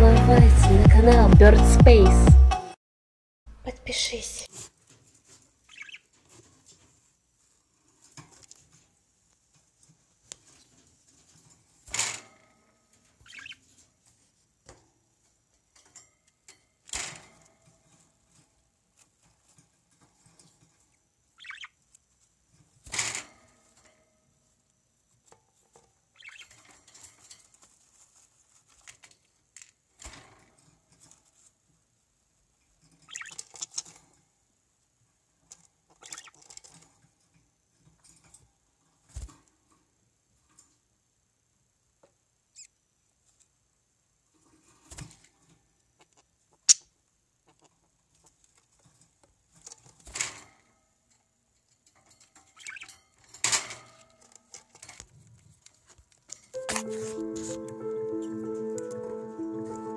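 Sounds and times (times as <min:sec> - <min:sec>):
bird chirps: 0:05.7 - 0:06.1, 0:13.2 - 0:13.6, 0:21.4 - 0:21.8, 0:26.2 - 0:26.6, 0:33.1 - 0:33.4, 0:52.6 - 0:53.0.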